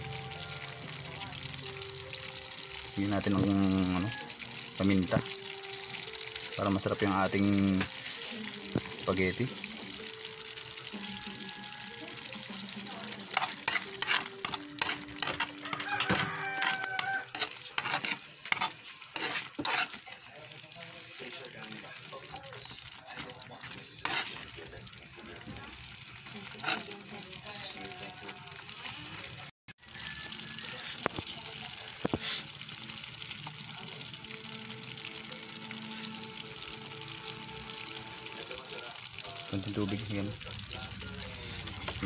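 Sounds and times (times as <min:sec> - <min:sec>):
spoon stirring sauce in a pot: 0:02.3 - 0:29.3, 0:30.3 - 0:35.1.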